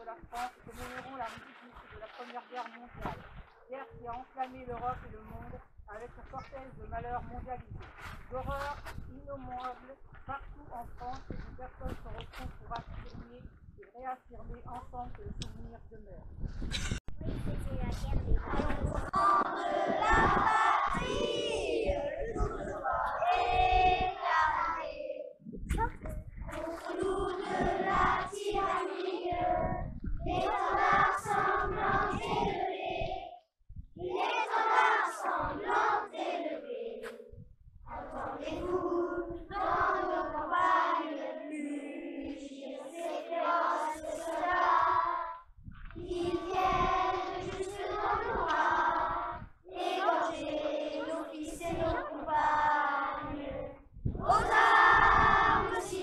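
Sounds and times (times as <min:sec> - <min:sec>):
children singing unaccompanied: 0:18.3 - 0:25.4, 0:26.5 - 0:33.4, 0:34.0 - 0:37.3, 0:37.9 - 0:45.4, 0:46.0 - 0:56.0.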